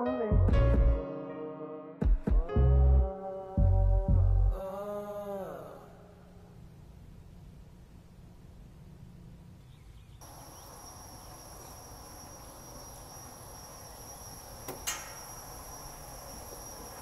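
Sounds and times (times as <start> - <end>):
low hum: 2.5 - 9.5
high-pitched whine: 10.2 - 17.0.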